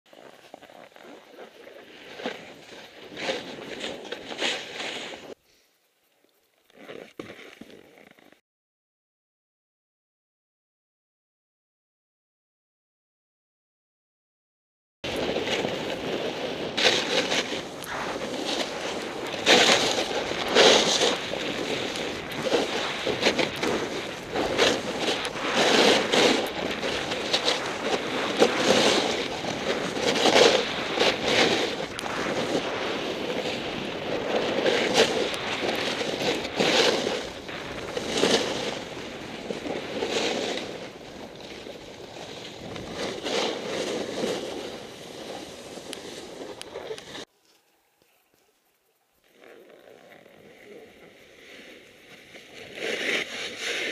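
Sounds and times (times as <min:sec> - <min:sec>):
snowboard scraping on snow: 0:00.1 - 0:05.4, 0:15.1 - 0:47.3, 0:49.5 - 0:53.9
wind on microphone: 0:15.0 - 0:47.3.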